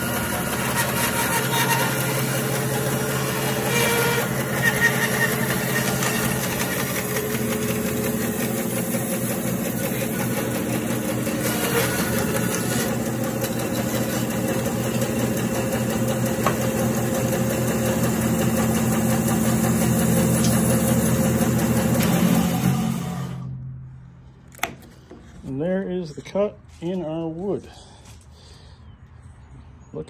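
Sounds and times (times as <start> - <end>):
bandsaw motor hum: 0.0 - 23.6.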